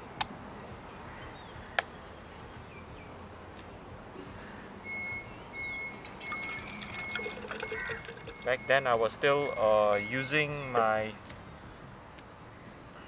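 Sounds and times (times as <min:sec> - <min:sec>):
birds chirping: 0:04.2 - 0:10.8.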